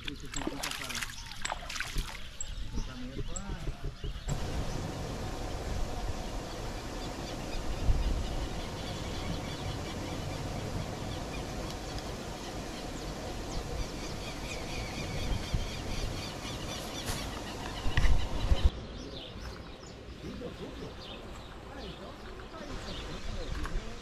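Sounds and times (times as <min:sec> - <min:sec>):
small birds chirping: 0:00.0 - 0:24.0
wind rumbling on microphone: 0:01.5 - 0:18.8
footstep knock: 0:02.9 - 0:04.3.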